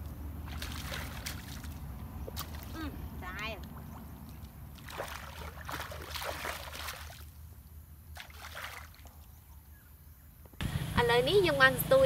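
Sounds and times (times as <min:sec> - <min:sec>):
water splashing around legs: 0:00.4 - 0:07.3, 0:08.1 - 0:09.2.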